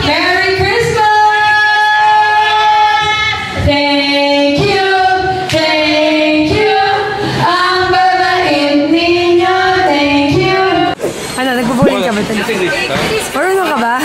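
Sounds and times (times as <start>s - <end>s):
women singing together: 0.0s - 11.0s.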